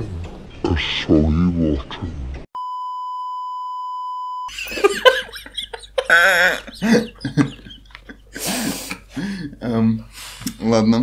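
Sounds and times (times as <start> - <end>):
high-pitched censor beep: 2.6 - 4.5
man and woman laughing: 4.5 - 8.9.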